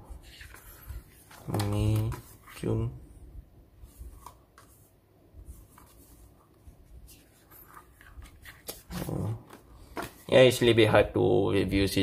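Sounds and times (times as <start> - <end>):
calendar pages rustling: 0.1 - 2.9, 5.5 - 10.8.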